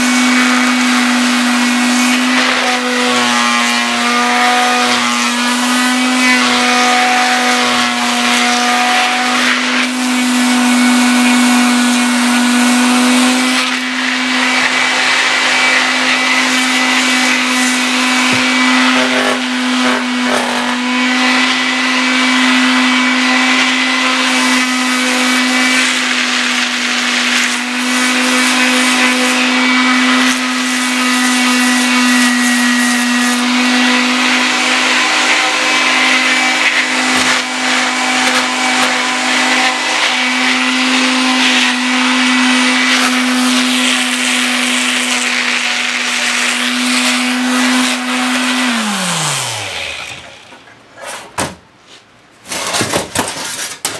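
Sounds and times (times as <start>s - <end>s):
electric power tool motor humming: 0.0s - 50.6s.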